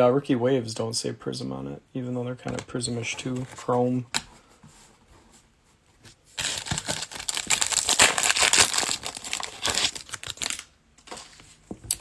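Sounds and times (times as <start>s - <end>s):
foil wrapper crinkling and tearing: 6.4s - 10.7s.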